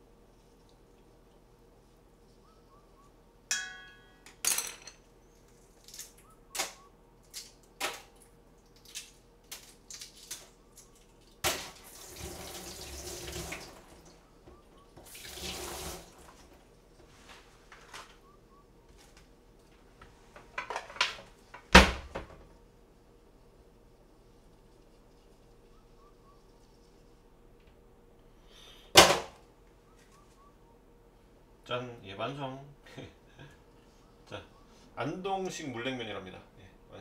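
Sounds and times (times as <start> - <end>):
ringing metallic clink: 3.5 - 4.9
tap water rushing into sink: 11.5 - 13.9, 15.0 - 16.3.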